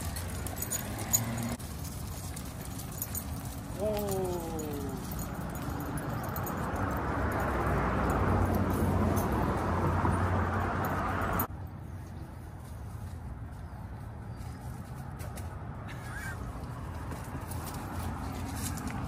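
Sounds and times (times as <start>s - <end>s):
dog leashes and tags clicking: 0.0s - 11.5s, 16.5s - 19.0s
street background: 0.0s - 19.0s
vehicle passing: 0.0s - 19.0s.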